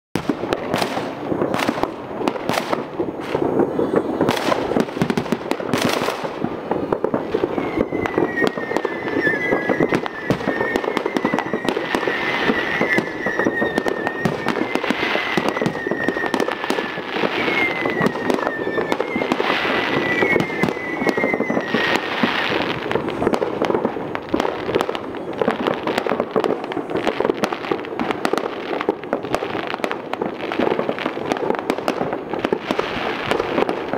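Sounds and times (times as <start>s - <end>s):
firework whistles: 0.2s - 33.9s
fireworks bangs and crackles: 0.2s - 33.9s.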